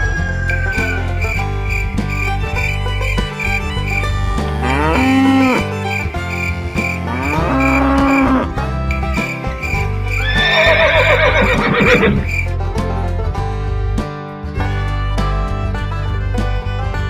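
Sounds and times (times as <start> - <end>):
country-style background music: 0.0 - 17.0
cow mooing: 4.6 - 5.7, 6.6 - 8.6
horse whinnying: 7.1 - 8.6, 10.2 - 12.3.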